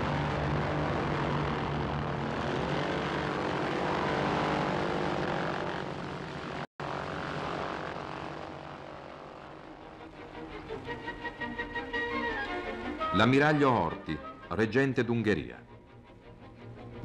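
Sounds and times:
propeller aircraft engine droning: 0.0 - 13.1.

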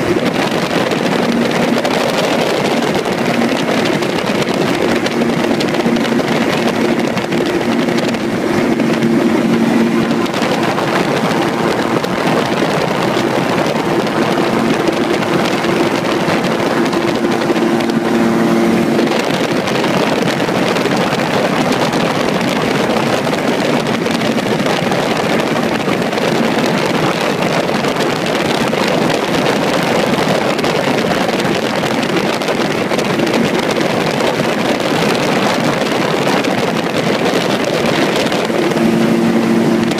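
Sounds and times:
steady hum: 0.0 - 21.1
gyrocopter engine drone: 0.0 - 39.9
wind rushing over microphone: 0.0 - 39.9.

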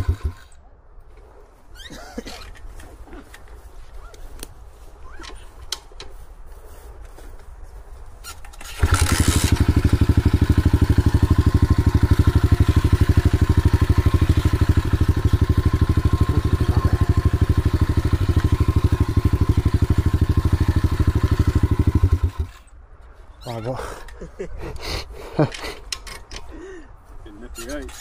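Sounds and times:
motorbike engine idling: 0.0 - 0.4, 8.7 - 22.6.

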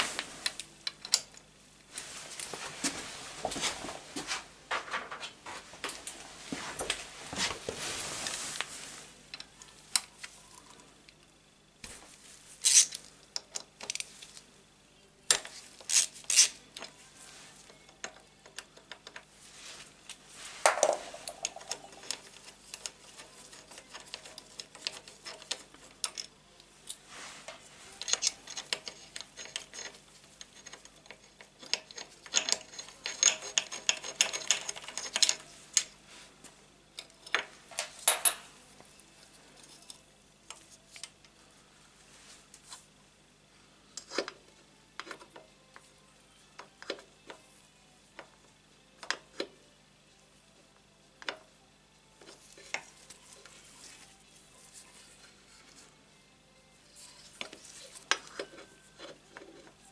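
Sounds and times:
handling and rustling: 1.8 - 10.6.

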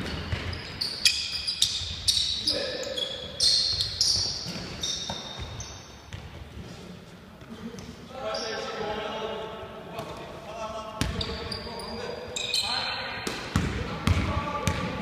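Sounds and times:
basketball bouncing: 0.0 - 0.7, 3.7 - 6.4, 13.2 - 15.0
sneaker squeaks on gym floor: 0.0 - 6.4, 11.0 - 13.0.

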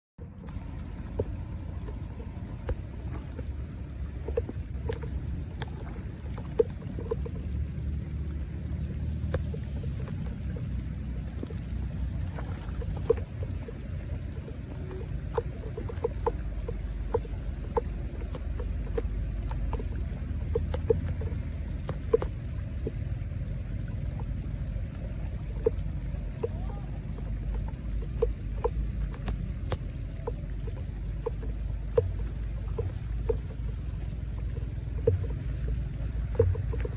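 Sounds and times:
steady low rumble: 0.2 - 36.9.

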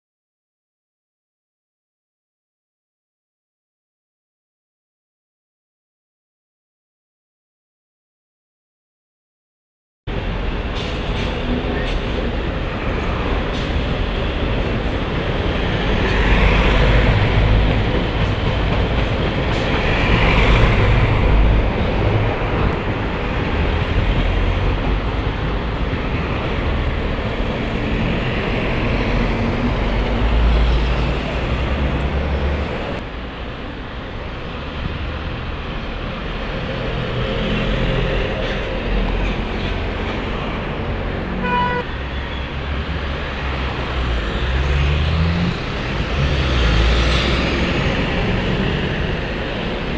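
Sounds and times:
buses and cars driving past: 10.1 - 49.9.

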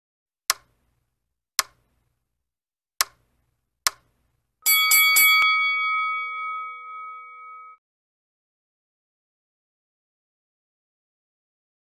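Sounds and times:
sharp clicks: 0.5 - 0.8, 1.6 - 1.9, 3.0 - 4.2
notification bell ringing: 4.6 - 7.8.

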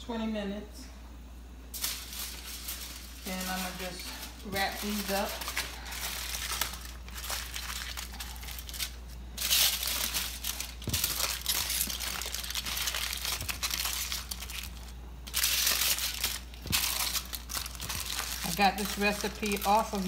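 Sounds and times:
aluminum foil crinkling: 1.7 - 20.0.

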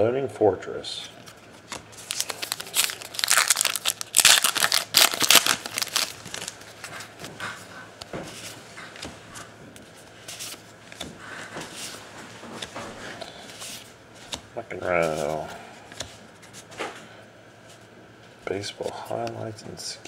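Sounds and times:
cards rustling and clicking: 1.2 - 7.3, 8.3 - 16.8
foil wrapper crinkling and tearing: 2.0 - 6.7.

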